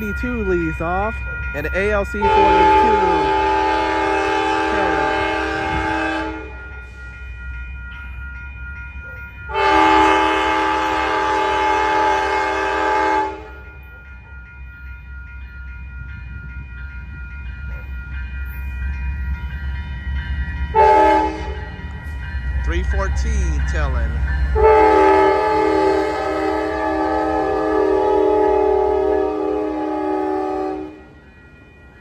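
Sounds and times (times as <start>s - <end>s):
low rumble of train: 0.0s - 32.0s
locomotive air horn blasts: 2.2s - 6.6s, 9.5s - 13.7s, 20.7s - 21.6s, 24.6s - 31.1s.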